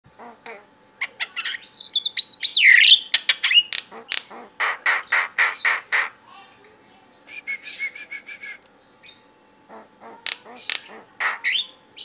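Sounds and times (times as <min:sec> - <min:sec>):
myna calling: 0:00.2 - 0:06.2, 0:09.0 - 0:12.0.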